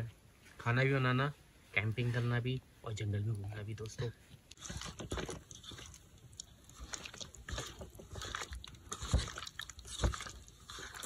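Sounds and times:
hands squishing wet food: 3.2 - 11.0.

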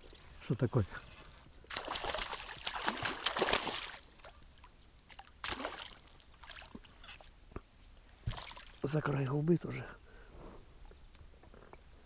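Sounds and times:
fish splashing at surface: 1.7 - 4.0.

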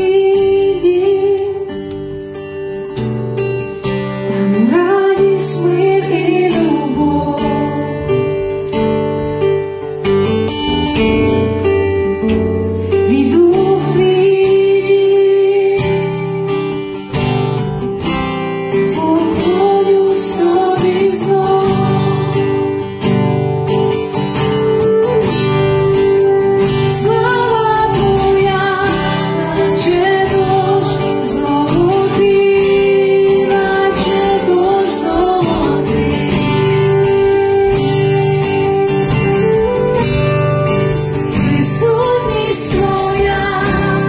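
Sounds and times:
woman singing: 0.0 - 2.1, 4.3 - 8.6, 12.9 - 17.0, 18.7 - 23.0, 24.4 - 44.0
acoustic guitar strumming: 0.0 - 44.0
bass guitar: 5.8 - 14.3, 20.6 - 44.0
woodwind long held notes: 24.4 - 31.2, 36.6 - 43.3.

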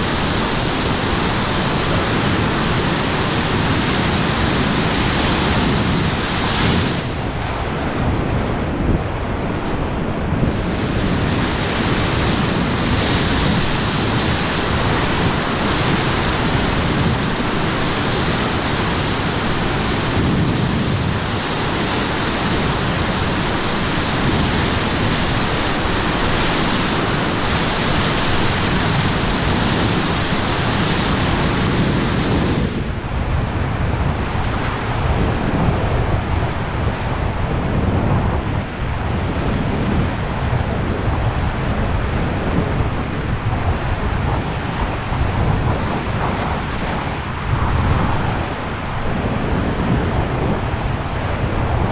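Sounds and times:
rushing whitewater: 0.0 - 51.9.

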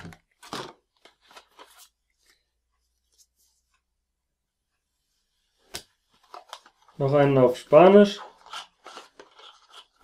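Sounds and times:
plastic box and paper rustling: 0.0 - 2.4, 6.1 - 10.0.

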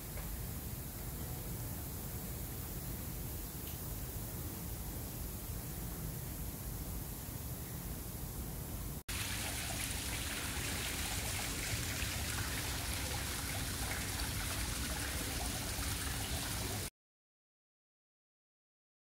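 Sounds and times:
running water rushing: 9.1 - 16.9.

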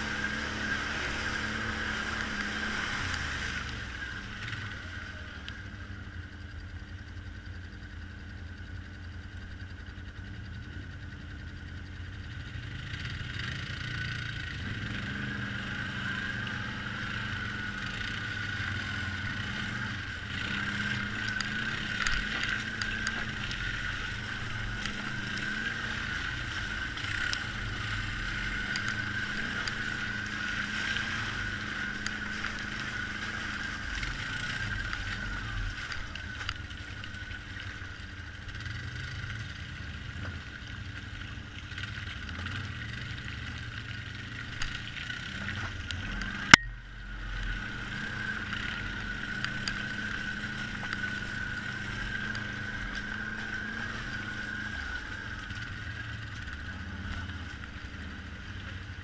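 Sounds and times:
atv engine running: 0.0 - 59.0
high whine: 45.7 - 58.2.

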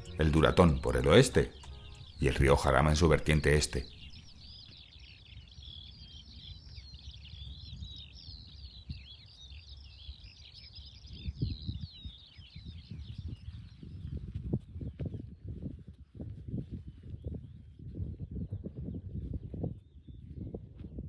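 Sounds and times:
songbird warbling song: 0.0 - 15.0
wind rumble on microphone: 4.0 - 21.0.

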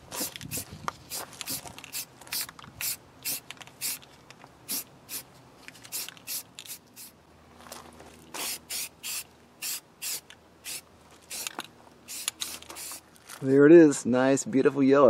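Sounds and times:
spray can hissing: 0.1 - 4.0, 4.7 - 7.1, 8.4 - 13.0.

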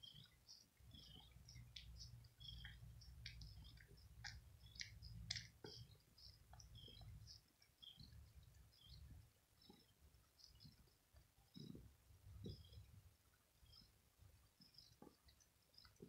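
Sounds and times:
kitten licking wet clicks: 0.1 - 8.7.

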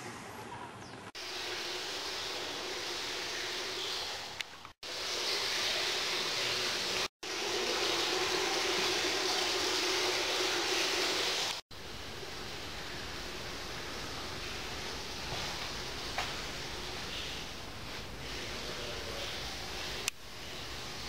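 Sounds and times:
room tone hiss: 1.2 - 21.0.

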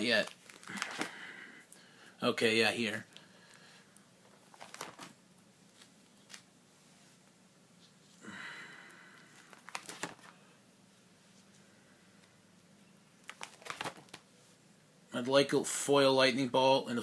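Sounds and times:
plastic pages crinkling and rustling: 0.0 - 1.2, 4.2 - 6.5, 9.3 - 10.4, 13.2 - 14.3.

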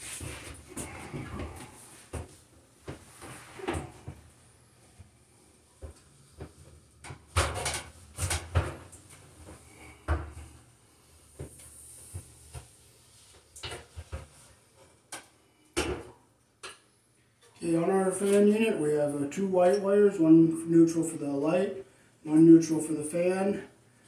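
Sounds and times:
objects knocking and clunking: 5.8 - 10.6, 13.6 - 16.8.

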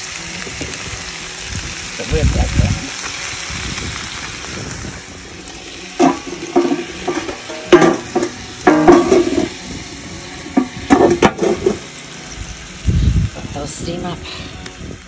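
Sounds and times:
food sizzling on griddle: 0.0 - 15.0
metal clanks and scrapes on griddle: 5.7 - 9.8, 10.4 - 12.3.

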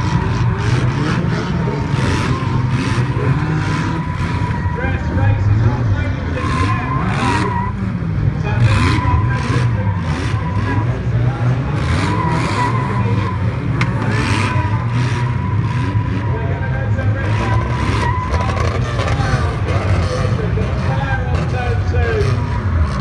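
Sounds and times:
car engines revving: 0.0 - 23.0
tyres skidding on dirt: 0.0 - 23.0.

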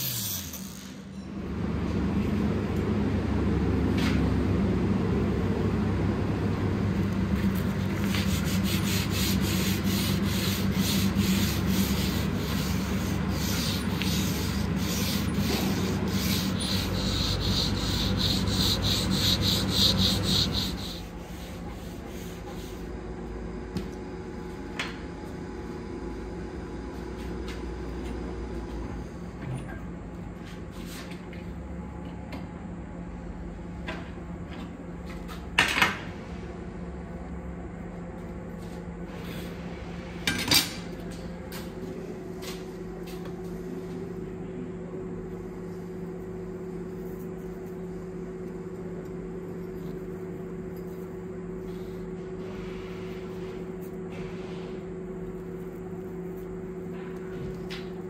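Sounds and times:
machine hum: 0.0 - 29.4
sanding strokes: 7.6 - 22.9.

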